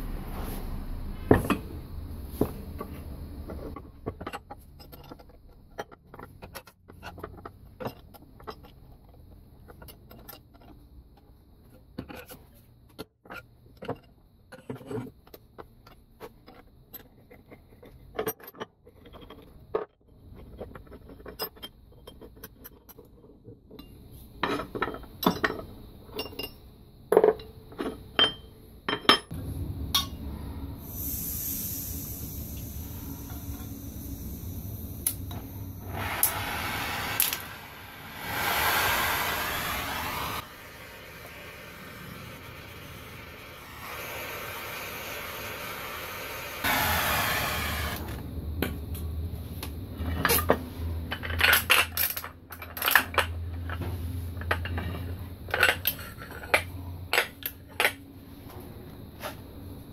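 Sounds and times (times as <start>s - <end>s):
steady hiss: 30.7s - 48.2s.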